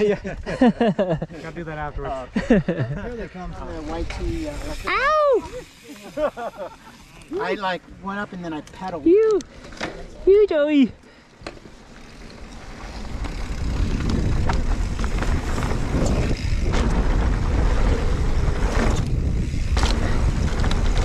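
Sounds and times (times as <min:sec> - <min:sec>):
bike clicks and rattles: 0:03.2 - 0:07.6, 0:08.3 - 0:21.0
bike tyres rolling over dirt: 0:03.3 - 0:10.3, 0:11.1 - 0:21.0
wind rushing over microphone: 0:12.8 - 0:21.0.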